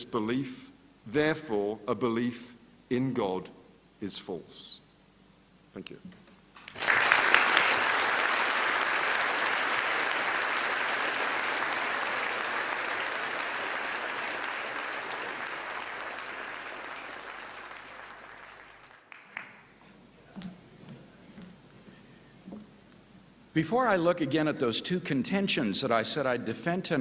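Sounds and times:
audience applauding: 6.6 - 19.8.

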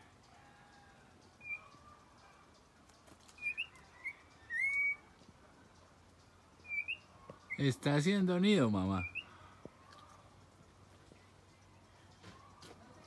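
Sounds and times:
oriole whistling: 1.4 - 1.7, 3.4 - 5.1, 6.6 - 7.6, 9.0 - 9.3.

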